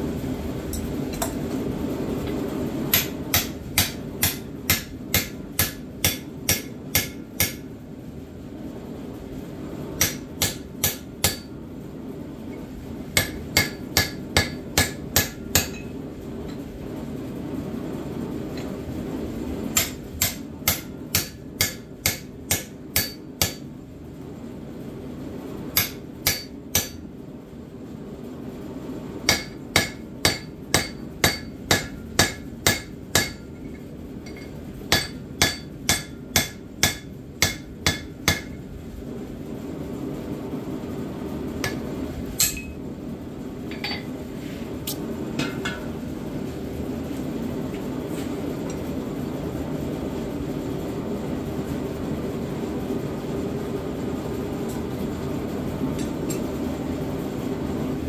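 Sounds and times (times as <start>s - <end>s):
hammer striking steel on anvil: 2.9s - 7.7s, 10.0s - 11.5s, 13.1s - 16.0s, 19.7s - 23.7s, 25.8s - 27.1s, 29.3s - 38.6s, 41.6s - 41.8s, 42.4s - 42.8s.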